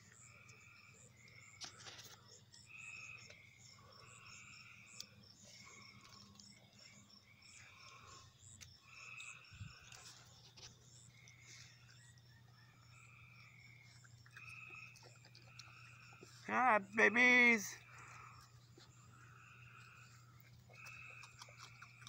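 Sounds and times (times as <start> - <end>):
frogs calling: 0.0 - 22.0
high frog chirps: 0.0 - 22.0.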